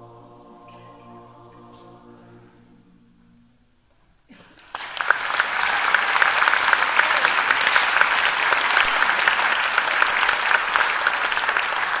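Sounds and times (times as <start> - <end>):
close hands clapping: 4.3 - 12.0
audience applauding: 4.4 - 12.0.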